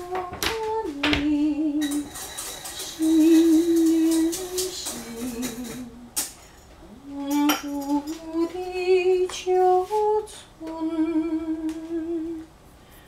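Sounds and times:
person humming a slow tune: 0:07.0 - 0:12.5.

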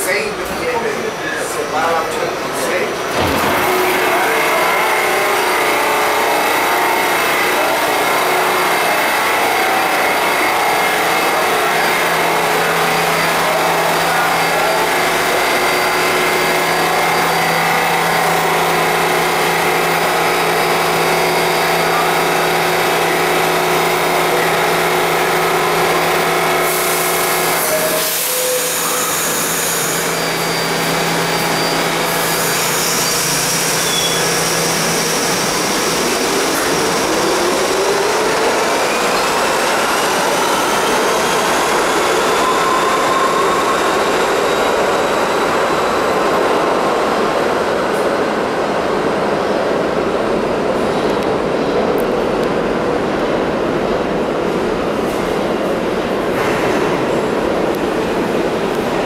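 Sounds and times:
subway train equipment humming: 0:00.0 - 0:59.0
traction motors whining: 0:02.6 - 0:47.3.

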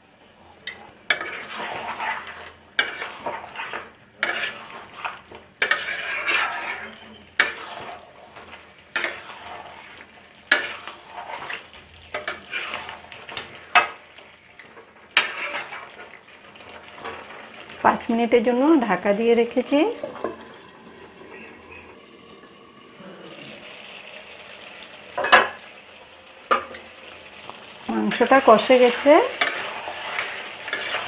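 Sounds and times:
gravy sizzling: 0:00.0 - 0:31.0
wet scraping: 0:01.2 - 0:08.0.

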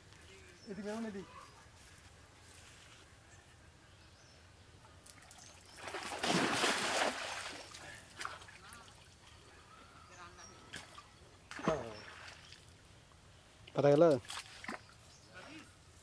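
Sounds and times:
cast net splashing into water: 0:05.1 - 0:08.5, 0:10.7 - 0:12.4, 0:14.2 - 0:14.9.

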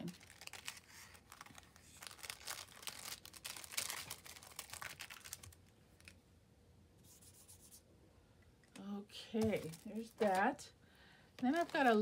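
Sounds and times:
plastic bag crinkling: 0:00.0 - 0:06.2, 0:09.4 - 0:10.7, 0:11.4 - 0:12.0.

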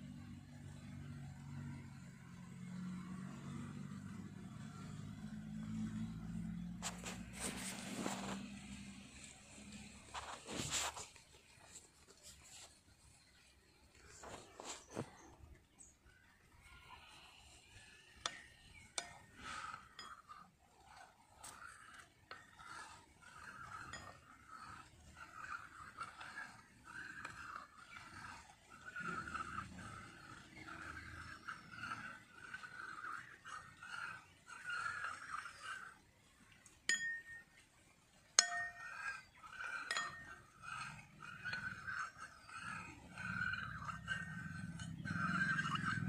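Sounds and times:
spoon scraping a bowl: 0:02.8 - 0:46.0
metal spoon clinking on bowl: 0:36.9 - 0:37.5, 0:38.4 - 0:39.2, 0:39.8 - 0:40.4
spoon clinking against bowl: 0:36.9 - 0:37.5, 0:38.4 - 0:38.8.

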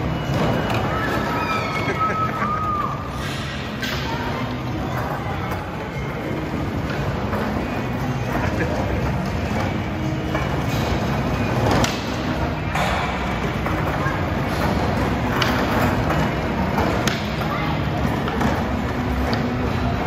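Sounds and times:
bumper cars running: 0:00.0 - 0:20.0.

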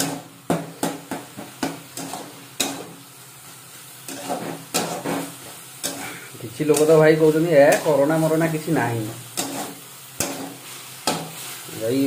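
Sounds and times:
low sizzle: 0:00.0 - 0:12.0
metal spatula scraping metal pan: 0:04.1 - 0:11.6.

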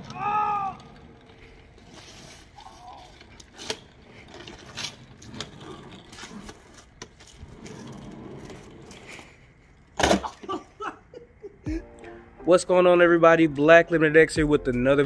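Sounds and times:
casters rolling on wet concrete: 0:00.0 - 0:10.8.

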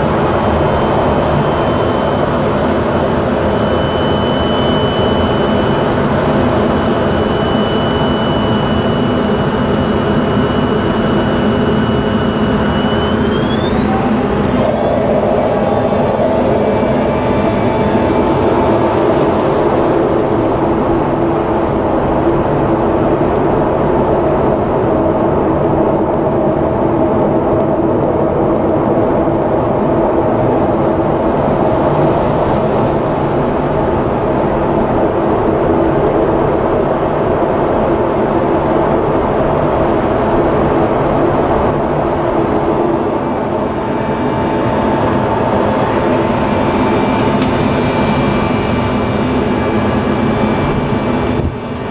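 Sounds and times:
jet airflow and engine roar: 0:00.0 - 0:51.9
multi-tone hum: 0:00.0 - 0:51.9.

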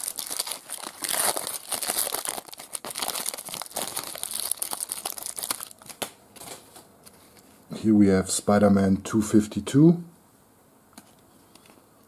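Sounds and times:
foil wrapper crinkling and tearing: 0:00.0 - 0:06.1.

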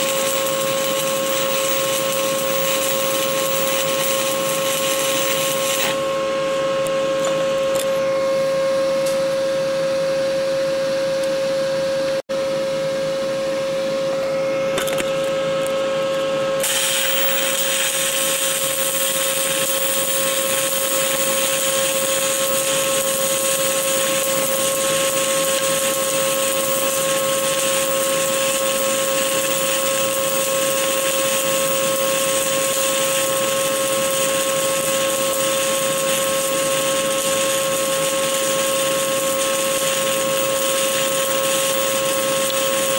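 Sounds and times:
welding arc hissing and humming: 0:00.0 - 0:08.0, 0:16.6 - 0:42.9.

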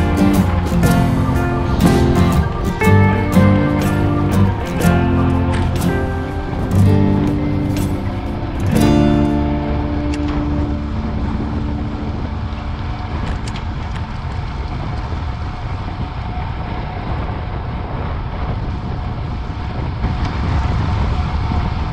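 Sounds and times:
guitar music: 0:00.0 - 0:14.0
tyre and road noise on asphalt: 0:00.0 - 0:21.9
wind buffeting microphone: 0:00.0 - 0:21.9.

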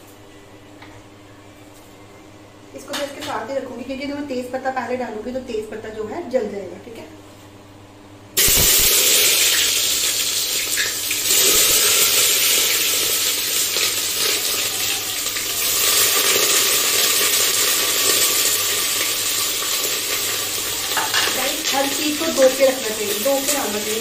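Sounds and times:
onions sizzling in hot oil: 0:08.4 - 0:24.0.

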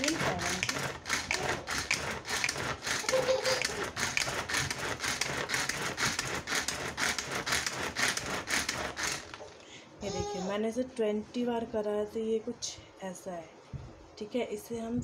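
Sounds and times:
vegetable chopper whirring: 0:00.0 - 0:09.4.

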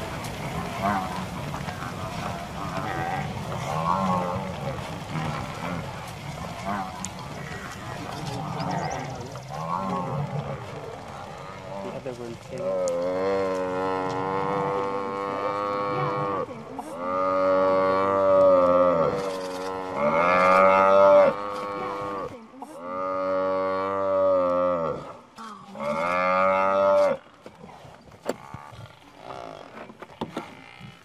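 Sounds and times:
lion roaring: 0:00.4 - 0:29.8.

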